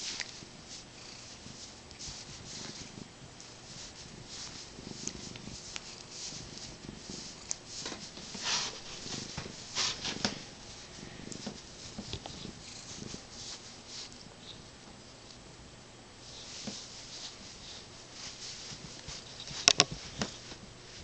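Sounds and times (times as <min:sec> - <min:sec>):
hand rustling on fur: 0:00.0 - 0:14.2, 0:16.2 - 0:21.0
cat purring: 0:00.0 - 0:14.7.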